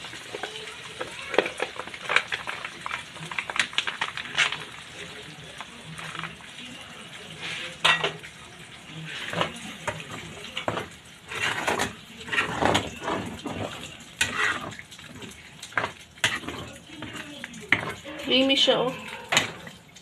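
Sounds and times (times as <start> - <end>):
metal spoon scraping a frying pan: 9.0 - 19.8.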